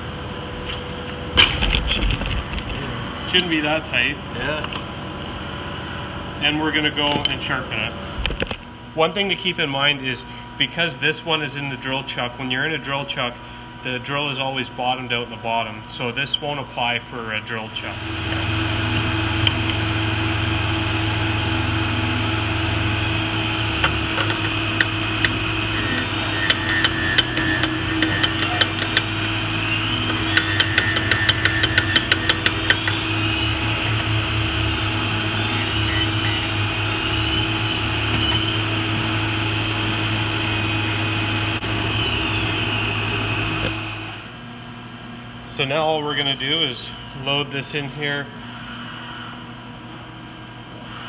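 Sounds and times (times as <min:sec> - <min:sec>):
drill bit sharpener humming: 0:24.8 - 0:29.3, 0:30.0 - 0:33.1, 0:34.8 - 0:36.8, 0:39.9 - 0:41.6.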